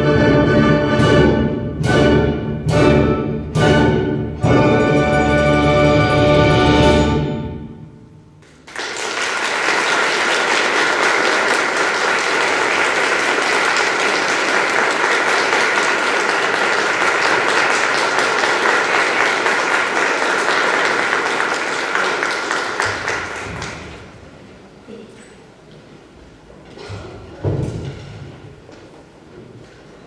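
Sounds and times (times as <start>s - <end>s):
concert audience applauding: 8.4s - 24.2s.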